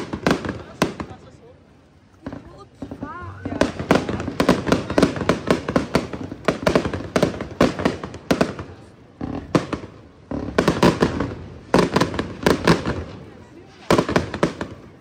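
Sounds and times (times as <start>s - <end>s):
fireworks bangs and crackles: 0.0s - 15.0s.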